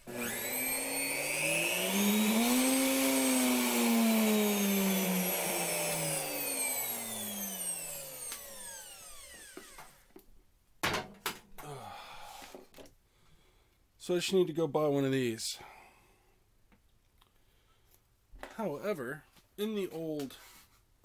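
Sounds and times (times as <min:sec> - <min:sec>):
router motor spinning: 0:00.0 - 0:10.0.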